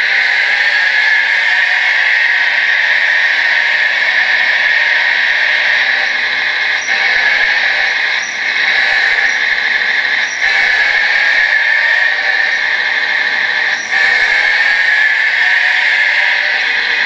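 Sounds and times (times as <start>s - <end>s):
toy bulldozer motors whining: 0.0s - 17.0s.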